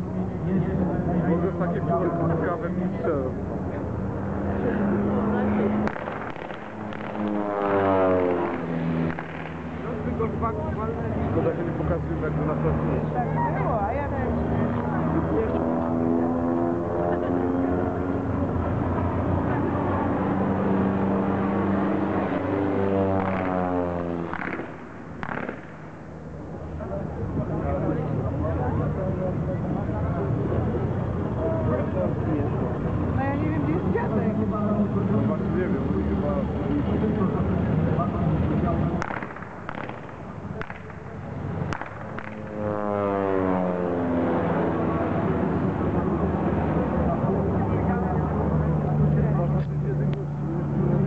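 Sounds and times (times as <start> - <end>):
propeller plane flying overhead: 0.0 - 51.0
sidecar motorcycle driving past: 1.2 - 25.6
sharp crack: 5.8 - 10.3, 23.2 - 26.1, 39.0 - 43.0.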